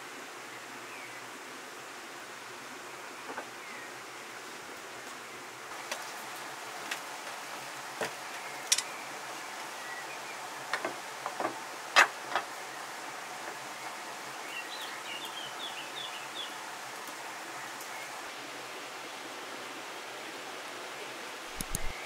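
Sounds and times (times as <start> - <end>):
outdoor background hiss: 0.0 - 22.0
bird chirping: 21.6 - 22.0.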